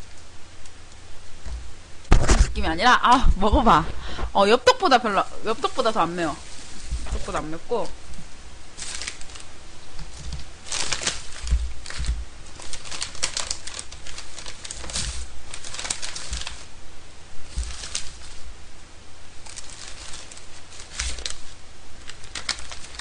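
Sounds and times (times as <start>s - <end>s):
food wrapping crinkling: 4.8s - 16.7s, 17.4s - 18.5s, 19.3s - 23.0s.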